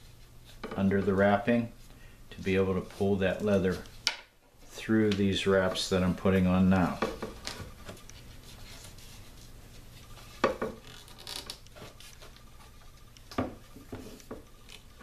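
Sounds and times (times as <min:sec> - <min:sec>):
paracord rubbing on handle: 0:06.8 - 0:13.1.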